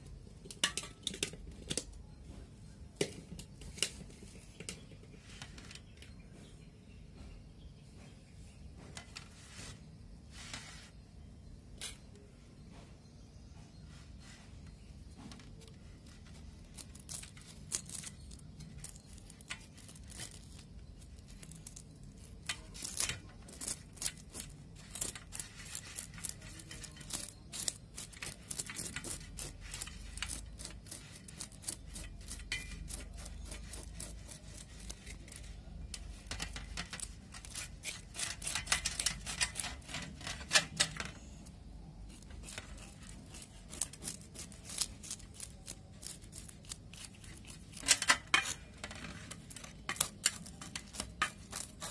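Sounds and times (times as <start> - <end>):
knife scraping fish scales: 16.2 - 35.5, 36.2 - 40.7, 42.1 - 51.9.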